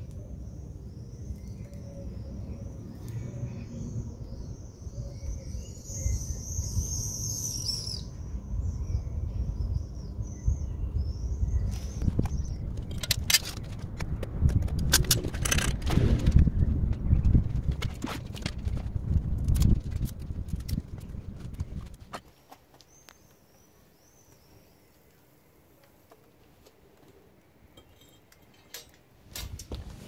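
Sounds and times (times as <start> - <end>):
low rumble: 8.0 - 22.1.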